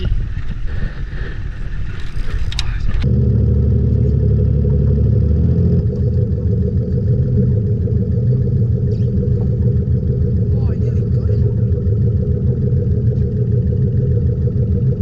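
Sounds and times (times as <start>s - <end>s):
boat engine running: 0.0s - 15.0s
clattery noise: 1.8s - 3.0s.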